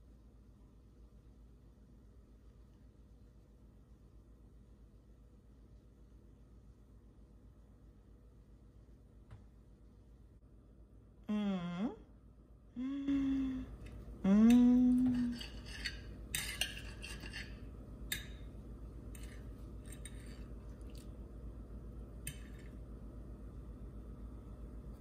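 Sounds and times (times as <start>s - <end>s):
person humming: 11.2s - 12.1s, 12.7s - 15.4s
knife and fork scraping plate: 15.1s - 17.7s.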